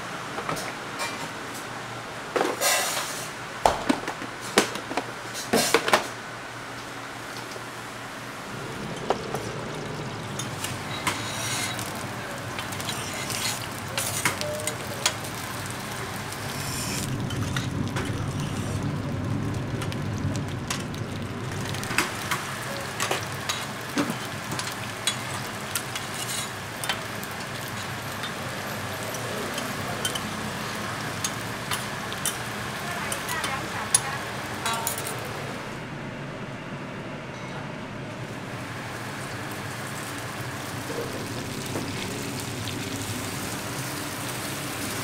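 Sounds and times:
rice cakes sizzling on griddle: 0:10.2 - 0:34.5, 0:38.4 - 0:45.0
metal spatulas scraping griddle: 0:10.4 - 0:11.9, 0:26.0 - 0:26.6.

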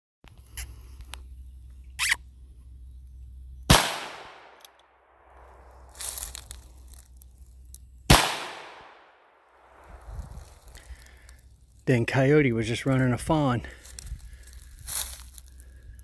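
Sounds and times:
revolver shots with echo: 0:03.7 - 0:04.6, 0:08.1 - 0:09.8.

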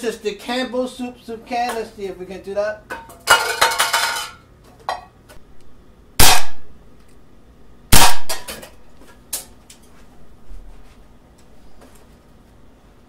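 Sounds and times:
air pistol shots: 0:06.2 - 0:06.7, 0:07.9 - 0:08.5.

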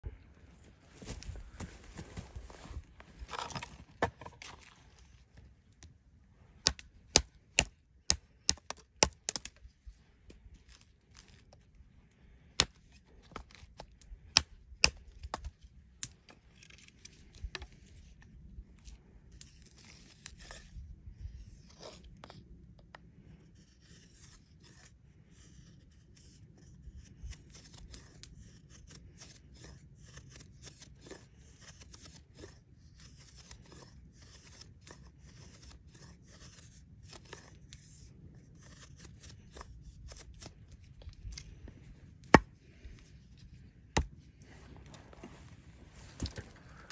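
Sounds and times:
knife shaving dry wood: 0:06.5 - 0:09.7, 0:18.8 - 0:20.8, 0:23.1 - 0:45.1.

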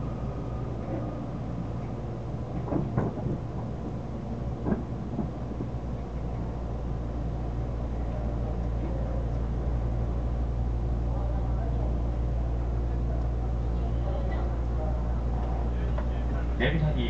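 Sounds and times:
low hum of standing train: 0:00.0 - 0:17.0
train knocks: 0:02.5 - 0:05.8.

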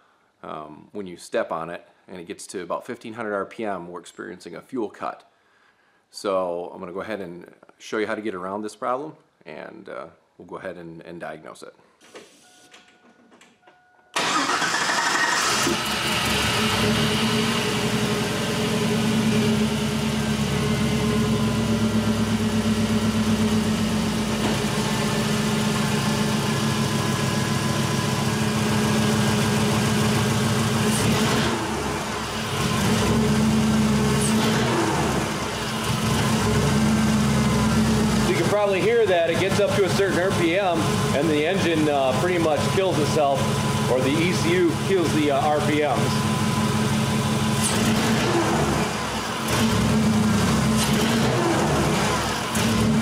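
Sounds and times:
car engine revving: 0:14.2 - 0:53.0.

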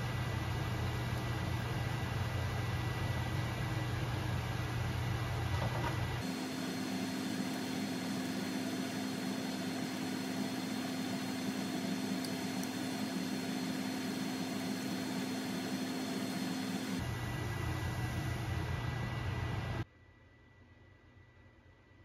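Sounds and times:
kitchen appliance hum: 0:00.0 - 0:19.9
food cooking in frying pan: 0:05.7 - 0:17.0.

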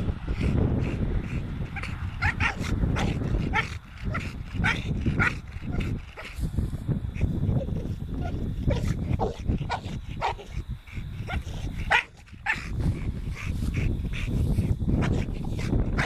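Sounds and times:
steady low rumble: 0:00.0 - 0:16.0
dog barking in high yips: 0:02.2 - 0:03.7, 0:11.3 - 0:12.7.

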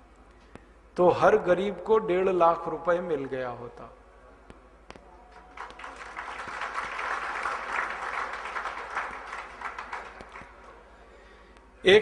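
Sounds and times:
audience applauding: 0:05.3 - 0:10.8.

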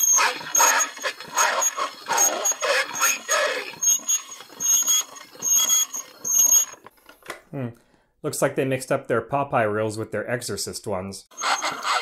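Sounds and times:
garbled distorted voice: 0:00.0 - 0:03.9.

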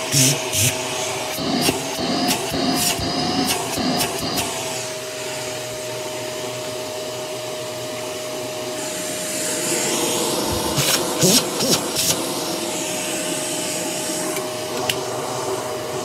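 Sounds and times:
high hiss of air: 0:00.0 - 0:05.4, 0:08.8 - 0:16.0
vacuum cleaner motor whine: 0:00.0 - 0:16.0.

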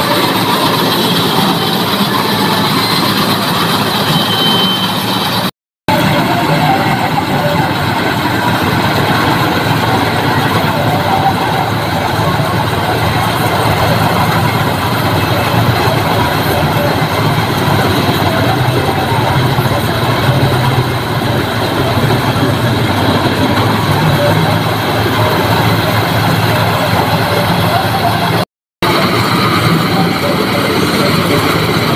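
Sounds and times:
combine harvester running: 0:00.0 - 0:31.9.

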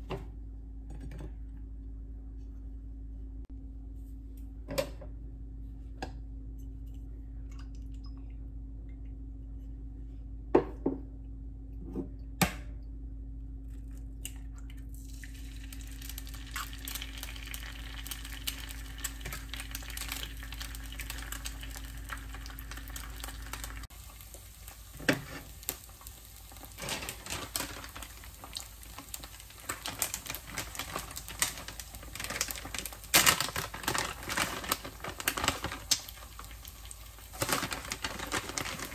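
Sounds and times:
steady low hum: 0:00.0 - 0:38.9
egg sizzling in a pan: 0:15.0 - 0:38.9.

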